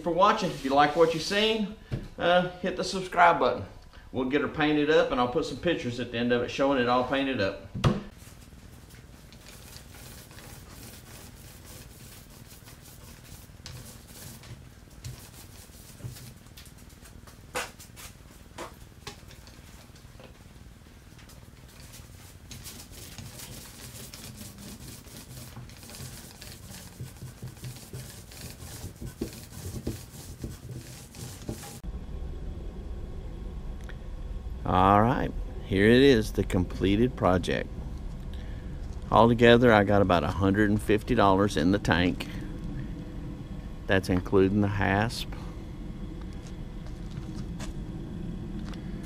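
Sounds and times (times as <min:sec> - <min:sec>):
paint roller crackling: 0:00.1 - 0:01.6, 0:08.1 - 0:20.4, 0:21.1 - 0:31.9.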